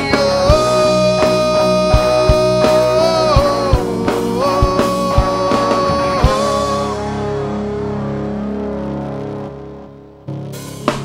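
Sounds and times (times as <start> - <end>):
male singer holding long notes: 0.0 - 7.4
drum kit beating steadily: 0.0 - 7.7, 10.3 - 11.0
acoustic and electric guitars: 0.0 - 11.0.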